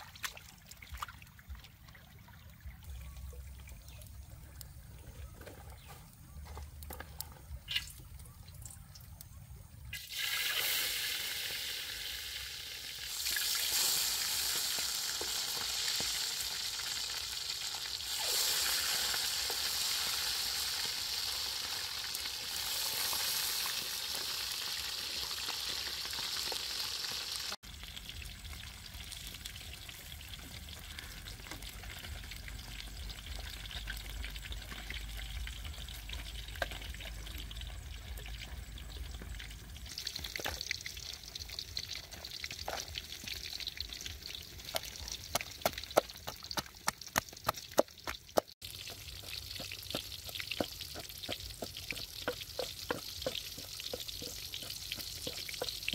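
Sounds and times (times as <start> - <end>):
oil popping and crackling: 3.5 - 55.9
fish sizzling in hot oil: 9.9 - 55.9.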